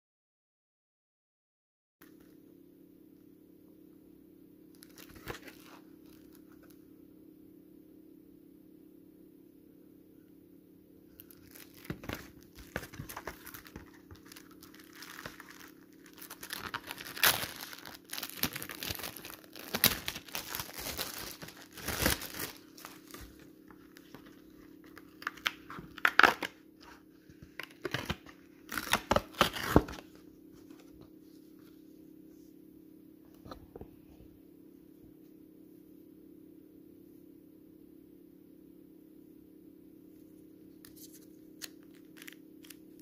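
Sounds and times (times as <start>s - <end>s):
plastic shrink-wrap crinkling: 4.7s - 6.8s, 11.2s - 30.1s, 40.9s - 43.0s.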